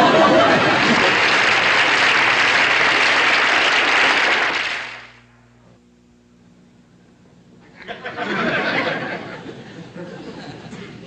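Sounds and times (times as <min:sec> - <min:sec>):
studio audience applauding: 0:00.0 - 0:05.2.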